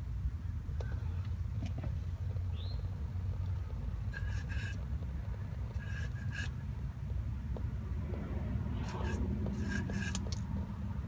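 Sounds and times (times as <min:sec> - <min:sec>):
steady low rumble: 0:00.0 - 0:11.0
oil squeezed from bottle nozzle: 0:08.8 - 0:10.4.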